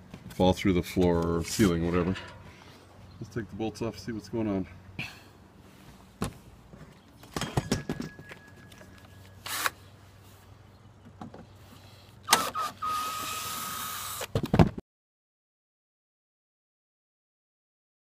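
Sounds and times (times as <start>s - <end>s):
cordless drill whining: 12.2s - 14.3s.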